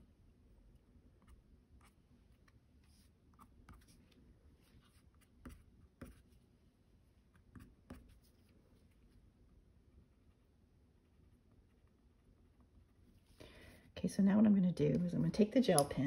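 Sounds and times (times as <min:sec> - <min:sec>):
pencil tapping and scratching on paper: 0:04.9 - 0:06.4, 0:07.3 - 0:08.5.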